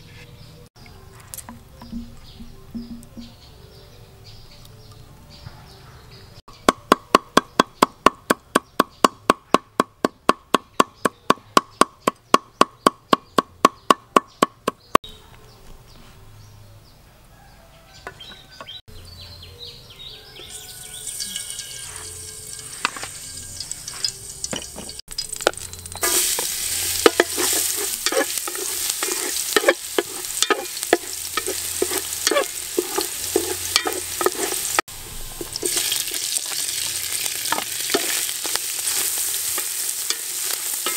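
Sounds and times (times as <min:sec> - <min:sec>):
cleaver chopping on wooden board: 0:06.6 - 0:14.8
wooden spatula scraping pot: 0:20.4 - 0:25.0, 0:26.0 - 0:34.8
garlic sizzling in hot oil: 0:20.4 - 0:40.9.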